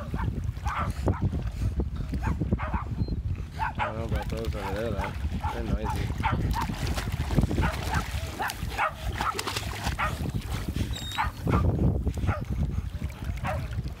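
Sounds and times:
dogs barking: 0:00.0 - 0:01.2, 0:02.2 - 0:03.0, 0:03.6 - 0:06.8, 0:07.6 - 0:10.3, 0:11.0 - 0:12.4, 0:13.4 - 0:13.7
dogs splashing in water: 0:00.0 - 0:14.0.

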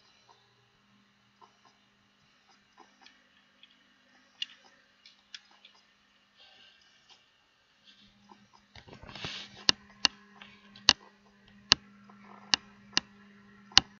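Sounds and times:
low steady hum: 0:00.0 - 0:14.0
brief rustle: 0:08.8 - 0:09.7.

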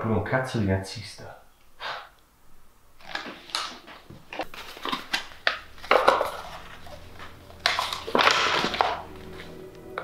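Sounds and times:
paper crackling and rustling: 0:03.0 - 0:09.6.

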